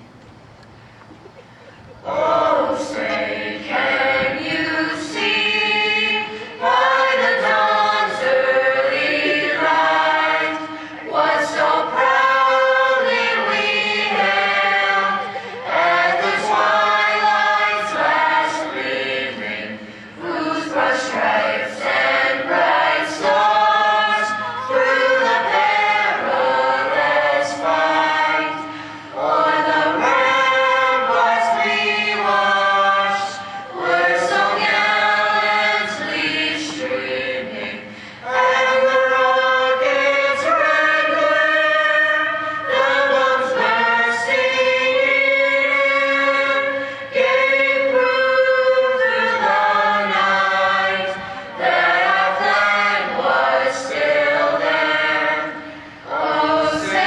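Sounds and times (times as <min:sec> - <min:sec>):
choir singing unaccompanied: 0:01.8 - 0:57.0.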